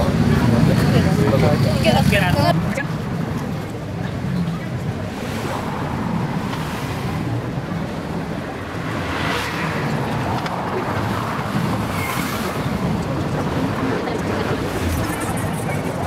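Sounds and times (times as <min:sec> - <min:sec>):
crowd noise: 0:00.0 - 0:16.0
traffic: 0:00.0 - 0:16.0
car passing close by: 0:05.0 - 0:15.4.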